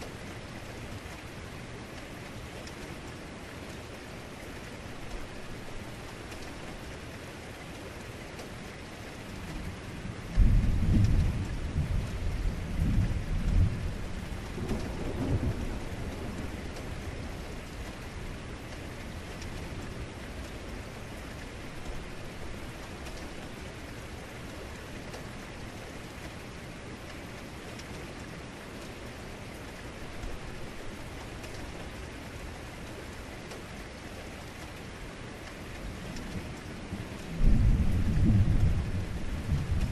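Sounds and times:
heavy rain falling: 0.0 - 39.9
deep rumbling thunder: 10.3 - 17.4, 36.3 - 39.9.

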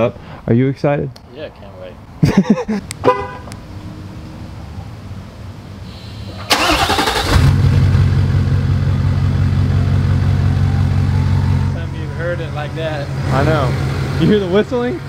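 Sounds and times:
engine starter cranking: 6.4 - 7.6.

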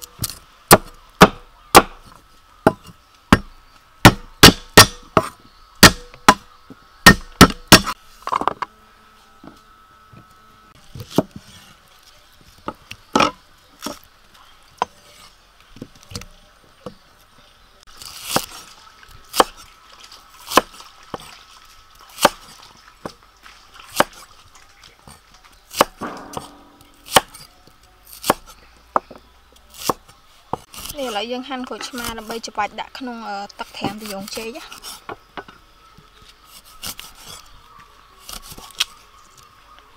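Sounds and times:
cleaver chopping on wooden board: 0.7 - 2.1, 2.7 - 8.5, 25.7 - 27.5, 28.2 - 29.2.

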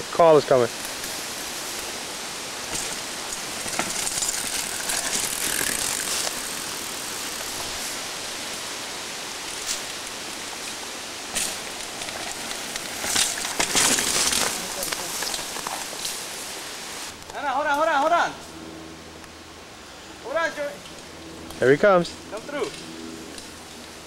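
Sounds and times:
bike tyres rustling over leaves: 0.2 - 18.5
sharp knocks from bikes: 2.7 - 3.0.

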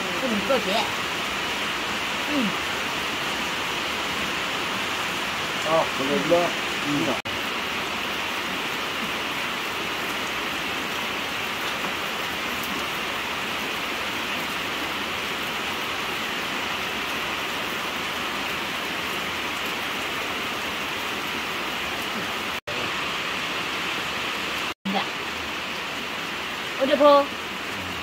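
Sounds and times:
steady rain hiss: 0.0 - 28.0.

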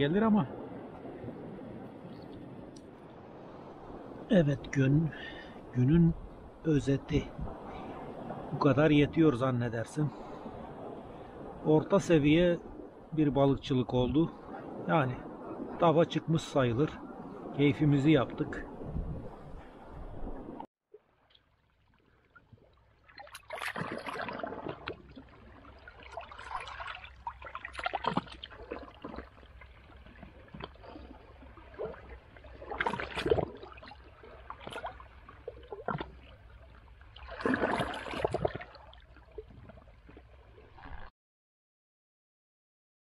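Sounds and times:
waves lapping against rocks: 18.7 - 41.1.

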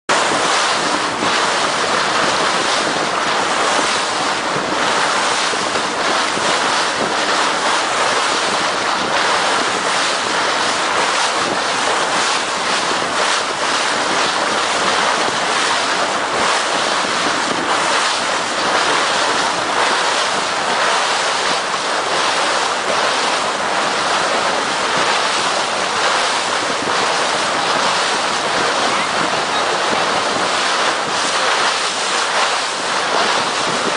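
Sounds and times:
water rushing past hull: 0.1 - 33.9
wind buffeting microphone: 0.1 - 33.9.

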